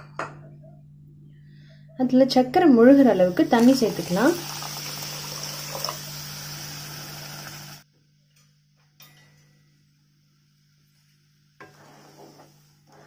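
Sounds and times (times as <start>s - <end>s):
water pouring into a pan: 3.5s - 7.8s.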